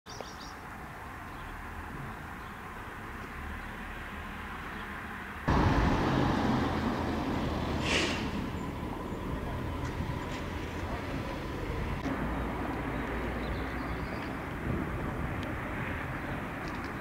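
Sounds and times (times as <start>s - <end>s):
outdoor low rumble: 5.5s - 17.0s.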